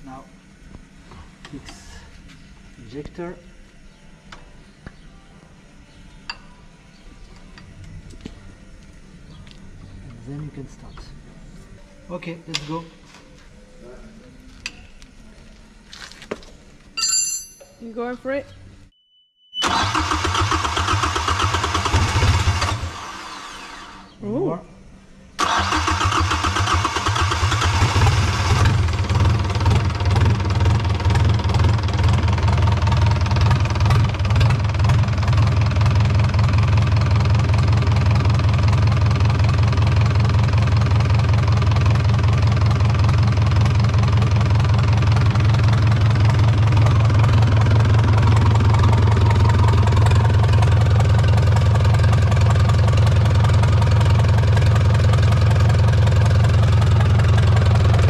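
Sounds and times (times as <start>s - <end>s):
diesel engine idling: 25.4s - 58.0s.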